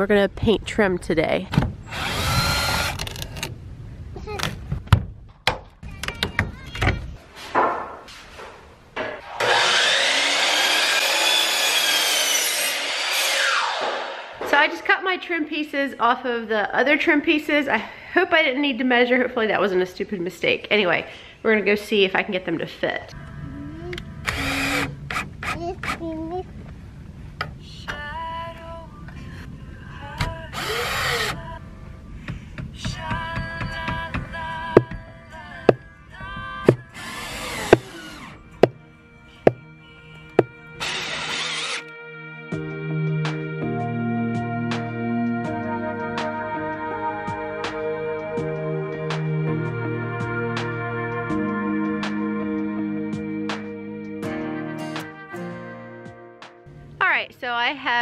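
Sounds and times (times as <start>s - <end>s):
saw motor high whine: 1.9s - 3.1s, 9.2s - 14.3s, 37.0s - 38.4s, 40.8s - 41.9s
miter saw cutting wood: 1.9s - 3.2s, 9.2s - 14.3s, 24.2s - 25.6s, 36.7s - 38.7s, 40.4s - 41.9s
cordless drill driving screw: 1.9s - 3.5s, 24.2s - 25.3s, 30.6s - 31.4s, 37.0s - 38.4s, 40.8s - 41.9s.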